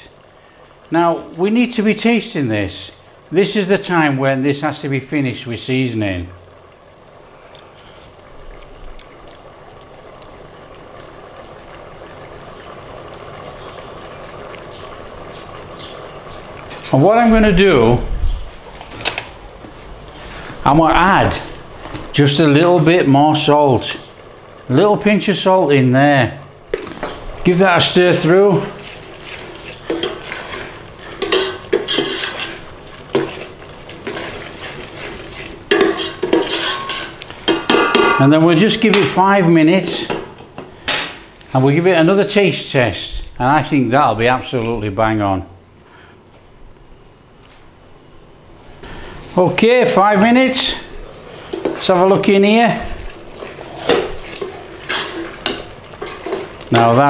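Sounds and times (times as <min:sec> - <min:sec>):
thick soup bubbling in a pot: 0:00.0 - 0:41.6, 0:48.5 - 0:57.0
spoon scraping a metal pot: 0:28.8 - 0:38.2, 0:53.4 - 0:56.9.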